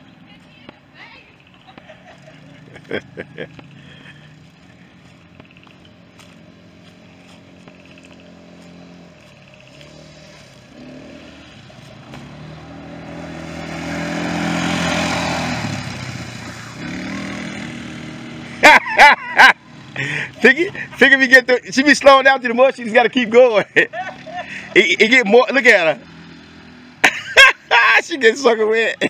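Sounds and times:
small engine running: 2.0 - 12.6.

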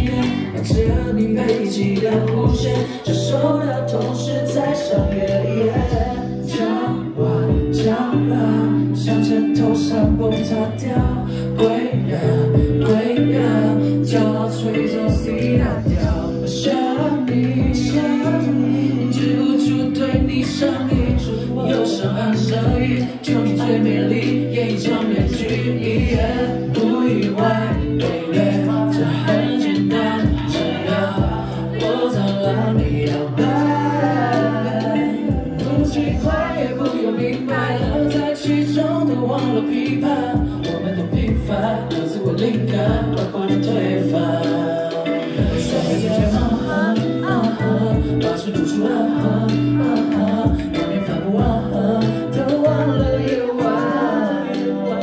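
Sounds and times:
amplified music with bass: 0.0 - 55.0
backing track with low chords: 0.0 - 55.0
man singing into microphone: 0.0 - 55.0.

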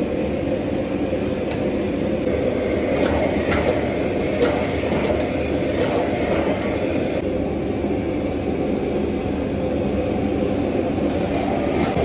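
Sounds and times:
gas burner and extraction roar: 0.0 - 12.0.

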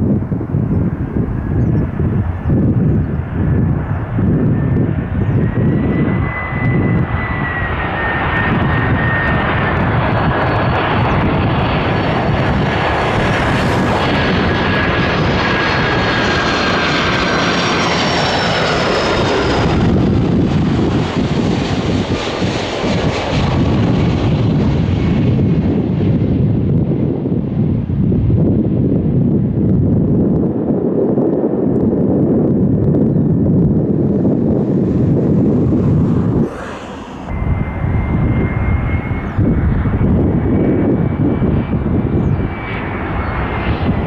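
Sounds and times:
jet airliner passing: 0.0 - 44.0
wind buffeting microphone: 0.0 - 44.0.

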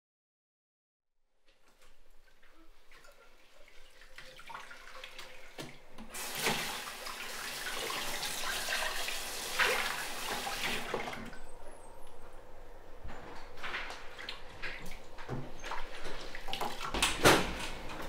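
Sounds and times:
faucet running into sink: 2.9 - 11.4.

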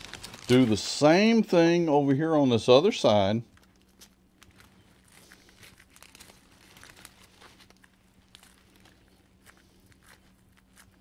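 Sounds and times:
velcro rustling and crackling: 0.0 - 1.1, 3.5 - 11.0
faint low hum: 0.0 - 11.0.

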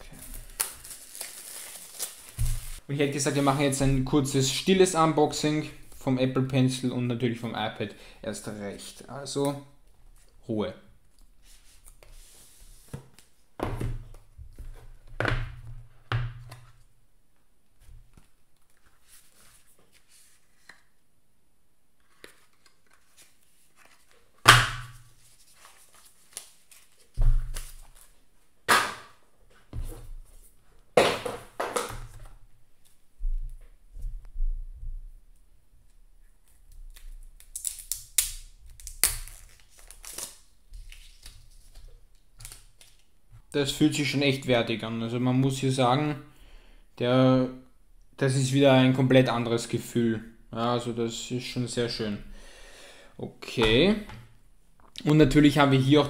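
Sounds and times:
paper packaging tearing and crinkling: 0.0 - 2.8, 37.4 - 41.2.

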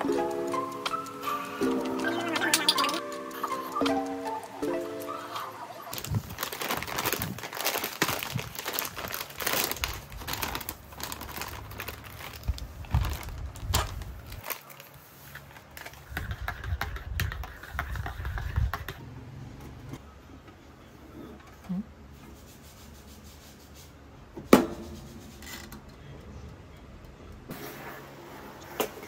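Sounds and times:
paper bag crinkling: 5.1 - 16.1.

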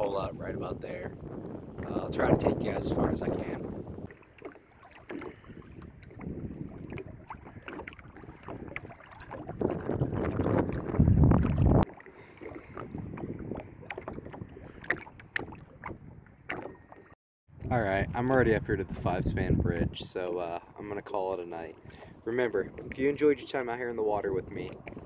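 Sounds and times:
water lapping at hull: 0.0 - 25.0
wind buffeting microphone: 0.0 - 25.0
paddle strokes splashing: 4.0 - 17.2, 21.5 - 25.0.

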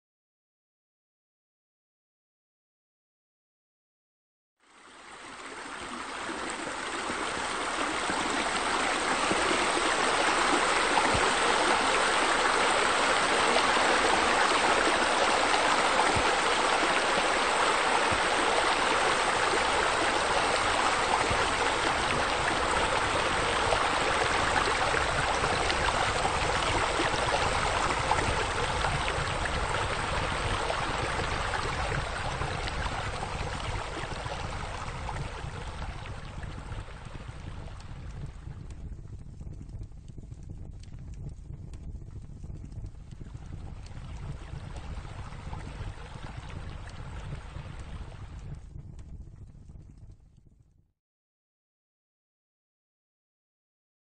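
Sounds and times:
water splashing and flowing: 4.7 - 39.9, 42.5 - 48.6.

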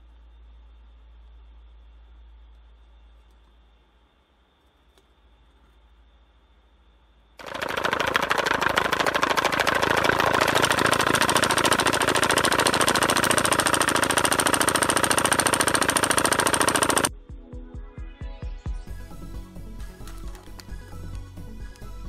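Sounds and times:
fast even metal rattle: 7.4 - 17.1.

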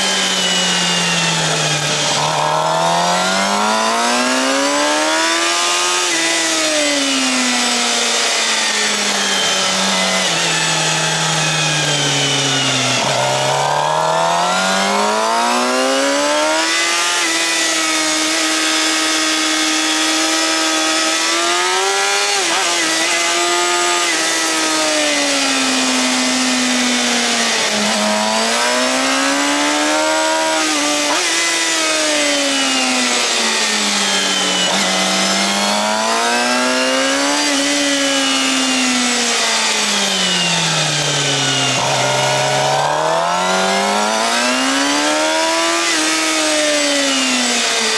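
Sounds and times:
motorcycle engine at high revs: 0.0 - 47.9.

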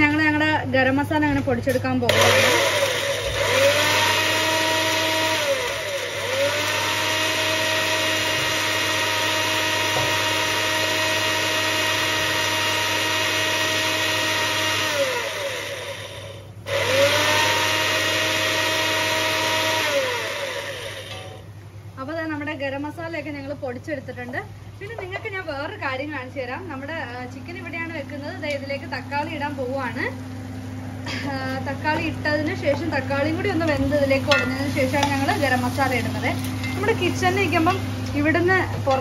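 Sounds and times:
mixer grinder motor whirring: 2.1 - 21.5, 27.5 - 39.0.

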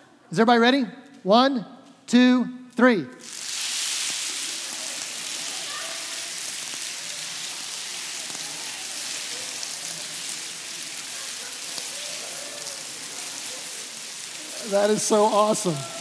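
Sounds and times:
faint voices: 4.3 - 16.0.

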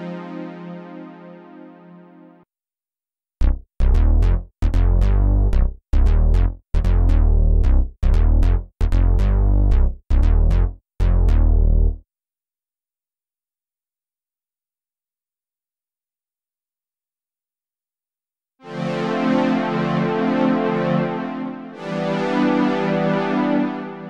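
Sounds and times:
funky synth bass line: 3.4 - 12.0.

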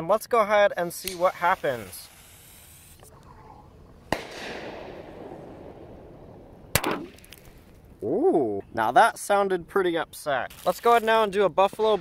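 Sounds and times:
firecracker fuse sizzling: 0.7 - 3.2, 10.4 - 11.8
fizzing hiss: 1.0 - 3.1
firecracker bang: 4.1 - 7.6.

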